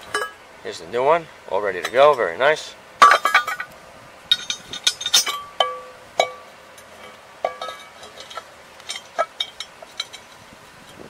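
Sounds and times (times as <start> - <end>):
metallic clinks and taps: 4.3 - 10.3.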